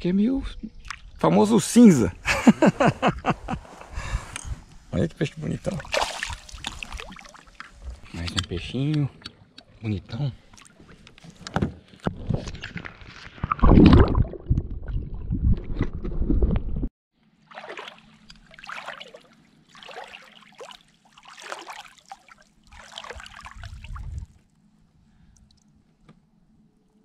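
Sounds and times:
water sloshing and gurgling: 0.7 - 1.2, 5.5 - 8.5, 9.1 - 24.6
soft water swishes: 5.4 - 8.1, 17.2 - 25.8.

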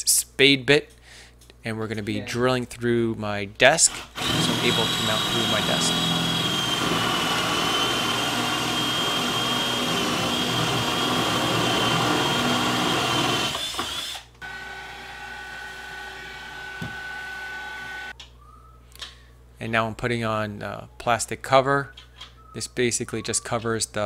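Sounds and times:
cordless drill boring through wood: 3.9 - 18.1
stick vacuum running: 4.1 - 14.1.

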